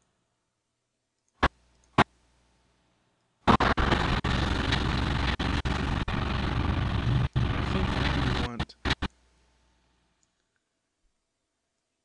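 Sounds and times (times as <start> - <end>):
loud steady rushing noise: 3.5 - 9.1.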